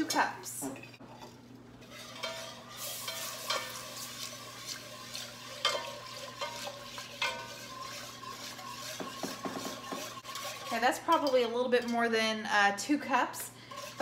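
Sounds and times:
whisk scraping a pot: 0.9 - 12.2, 13.6 - 14.0.

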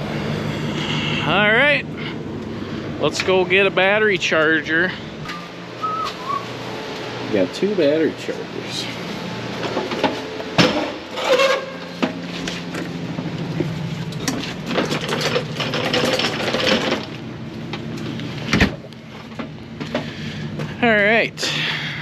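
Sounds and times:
truck engine idling: 0.0 - 22.0
equipment clanks and rattles: 9.5 - 20.8.

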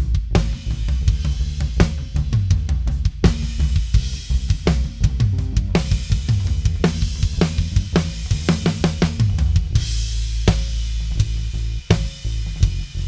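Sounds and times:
acoustic drum kit groove: 0.0 - 13.0
low ringing drum note: 4.6 - 9.9.

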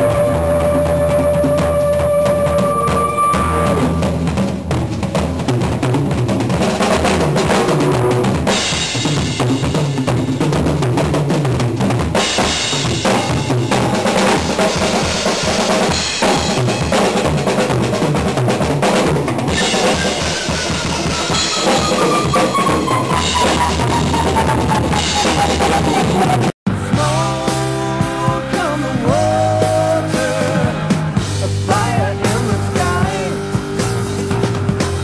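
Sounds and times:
long tone sliding down: 0.0 - 4.2, 19.6 - 26.5
drum kit played fast: 0.0 - 35.0
recorded rock music: 0.0 - 35.0.

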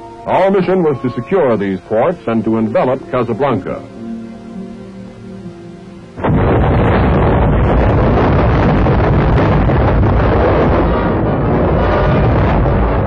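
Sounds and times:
soft orchestral music: 0.0 - 6.2
explosions: 6.2 - 13.0
gunfire: 6.2 - 13.0
loud boom: 6.2 - 13.0.

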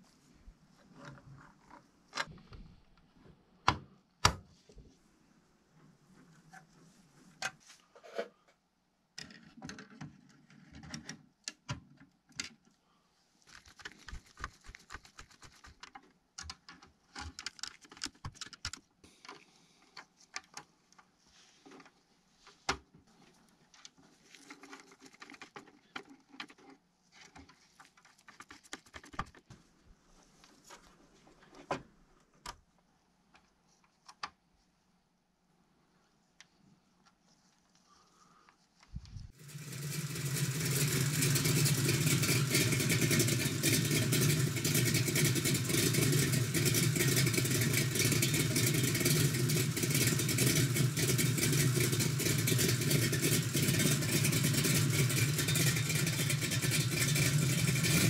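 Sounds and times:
plastic and metal parts clicking: 13.5 - 21.1.

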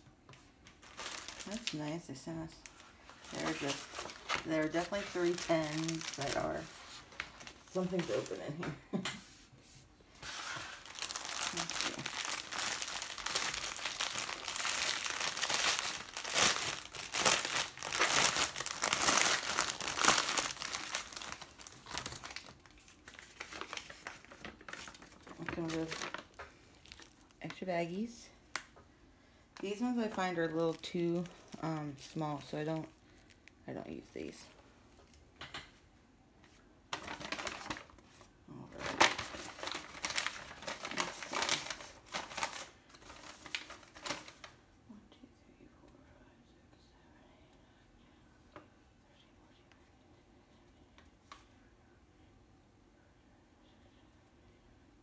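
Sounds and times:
plastic wrap crinkling: 0.6 - 8.6, 10.2 - 28.7, 29.6 - 34.5, 36.9 - 44.6.

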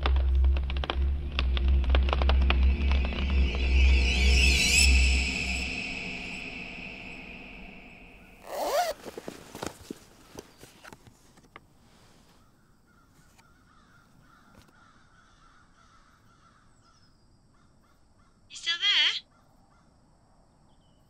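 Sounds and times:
faint wavering chirps: 2.3 - 9.0
harsh caw-like bird call: 12.9 - 18.4.

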